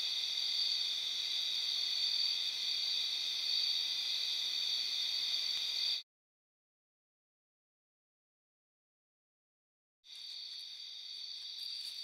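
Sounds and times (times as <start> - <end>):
night insects droning: 0.0 - 6.0, 10.1 - 12.0.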